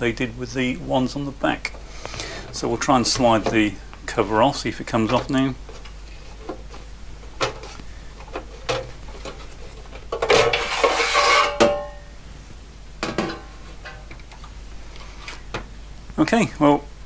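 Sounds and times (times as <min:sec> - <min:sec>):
metal scraping with ringing: 0:10.5 - 0:12.1.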